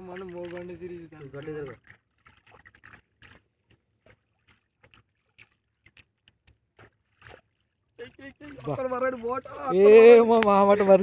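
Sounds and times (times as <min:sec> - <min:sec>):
faint irregular clicks: 0:04.8 - 0:06.9.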